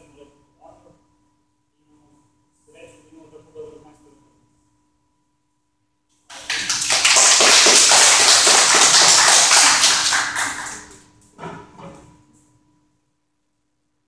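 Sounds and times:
small group applauding: 0:06.3 - 0:11.1.

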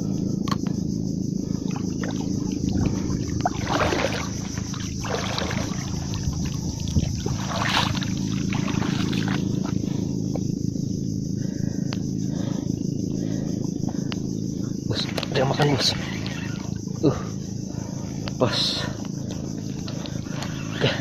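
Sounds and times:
low motor hum: 0:00.0 - 0:21.0
water sloshing: 0:01.5 - 0:10.4.

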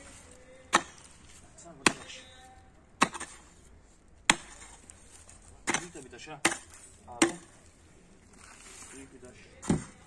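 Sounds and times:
pickaxe striking hard ground: 0:00.7 - 0:01.1, 0:01.8 - 0:02.2, 0:03.0 - 0:03.4, 0:04.3 - 0:04.8, 0:05.6 - 0:07.6.

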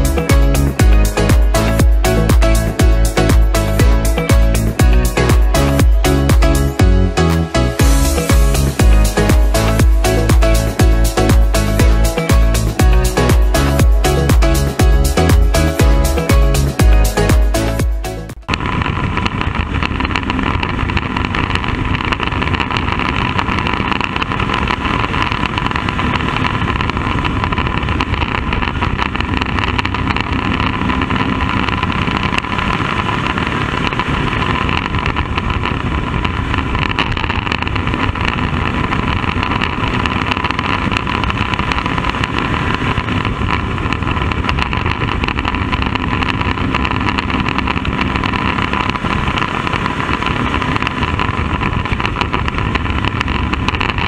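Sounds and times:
race car engine running hard: 0:00.0 - 0:54.0.

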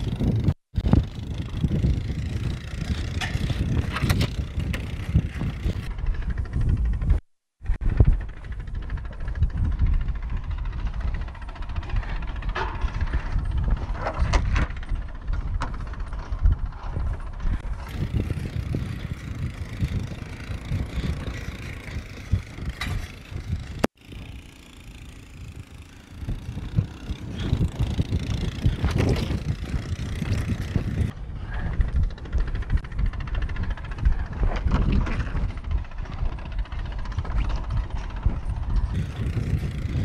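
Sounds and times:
atv engine running: 0:00.0 - 0:40.0
wind rumble on camera: 0:00.0 - 0:40.0.

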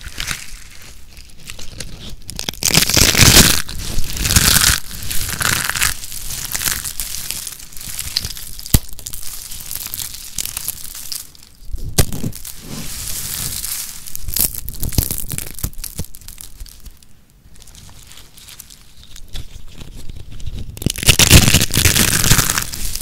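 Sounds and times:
soap flakes crackling crunch: 0:00.0 - 0:23.0.

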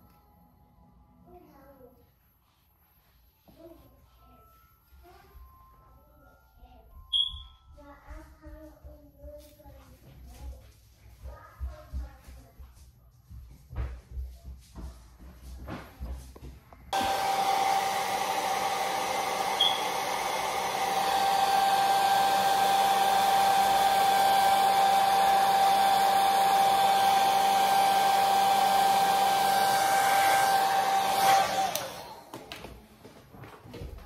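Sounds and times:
hair dryer blowing: 0:16.9 - 0:32.9.

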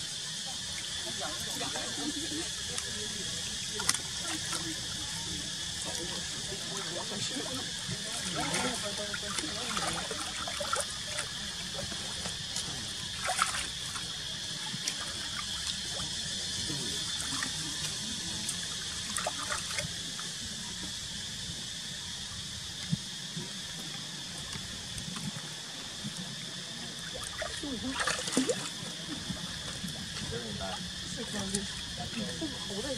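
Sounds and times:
water trickling and stirring: 0:00.4 - 0:20.3, 0:24.5 - 0:32.9.

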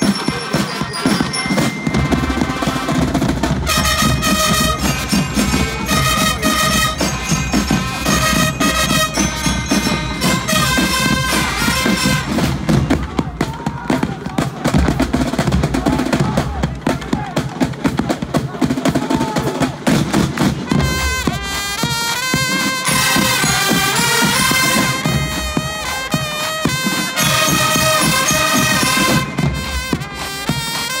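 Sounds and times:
trumpets playing chords: 0:00.0 - 0:13.5, 0:20.6 - 0:31.0
snare and bass drumming: 0:00.0 - 0:31.0.

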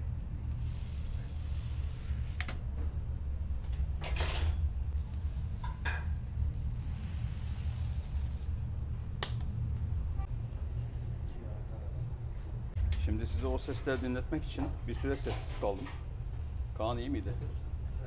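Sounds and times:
constant low hum: 0:00.0 - 0:18.0
chicken sizzling on a grill: 0:00.5 - 0:02.4, 0:05.0 - 0:08.5.

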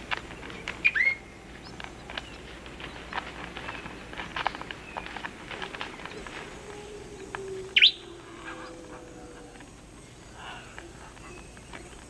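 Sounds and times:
light ticks and crackles: 0:00.0 - 0:00.9, 0:01.5 - 0:12.0.

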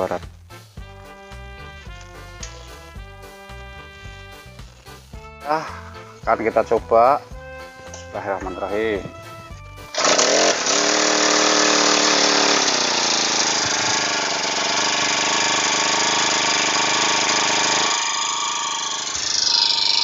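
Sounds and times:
brush cutter engine: 0:09.9 - 0:20.0.

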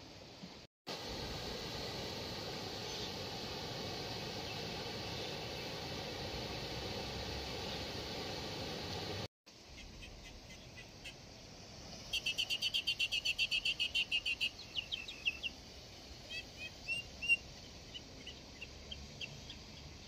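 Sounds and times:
small bird singing: 0:12.1 - 0:20.0.

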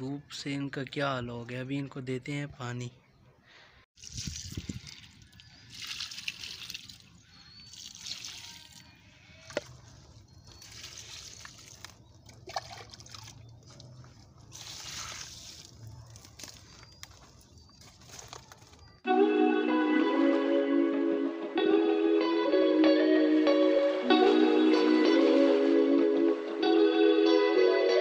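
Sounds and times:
water splashing onto soil: 0:04.0 - 0:08.9, 0:10.4 - 0:16.6.

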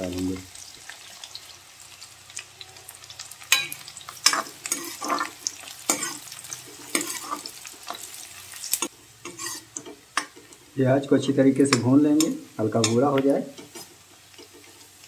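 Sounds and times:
onions sizzling in hot fat: 0:00.0 - 0:15.0
metal spoon scraping a pan: 0:03.4 - 0:10.7, 0:11.6 - 0:15.0.

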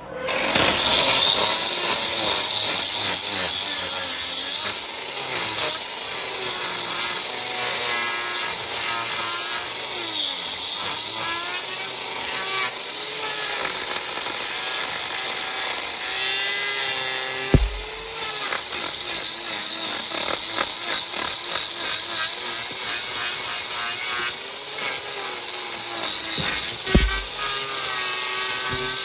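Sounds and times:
power tool cutting: 0:00.0 - 0:29.0
sharp thump: 0:17.6 - 0:18.1, 0:26.4 - 0:27.5.

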